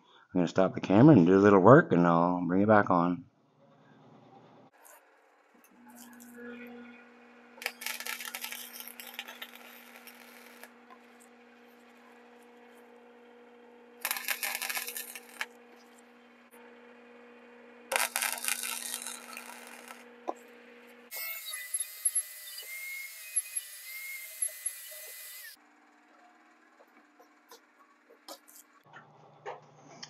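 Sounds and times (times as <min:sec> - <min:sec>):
welder electrical hum: 0:03.6 - 0:30.0
arc welding crackling: 0:04.8 - 0:06.8, 0:07.5 - 0:16.6, 0:17.9 - 0:25.6
high-pitched power tool: 0:05.6 - 0:12.9, 0:14.0 - 0:16.6, 0:17.9 - 0:25.6.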